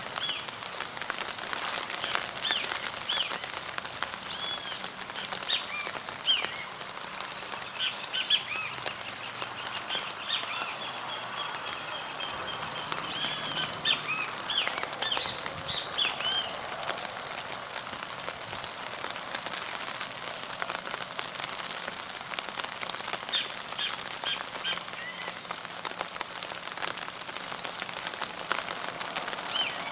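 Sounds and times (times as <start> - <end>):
birds chirping: 4.3 - 17.8.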